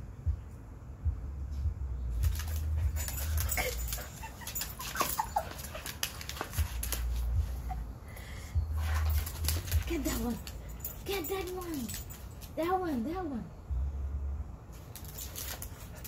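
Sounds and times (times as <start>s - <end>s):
low rumble: 0.0s - 4.1s, 6.6s - 11.0s, 13.4s - 14.7s
dog whining and yipping: 2.4s - 7.8s
taps and scuffs: 4.6s - 7.6s.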